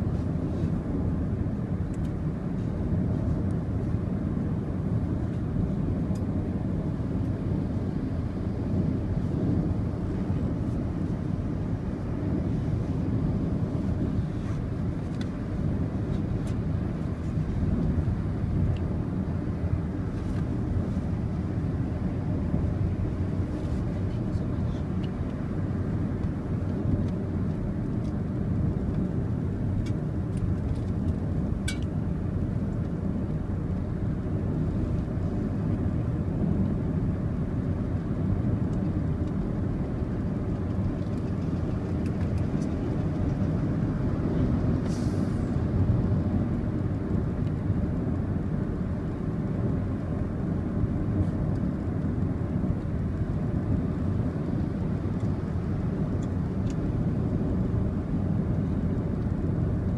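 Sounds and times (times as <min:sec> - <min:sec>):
car road noise from inside cabin: 0:00.0 - 0:59.9
brief hiss: 0:44.8 - 0:45.6.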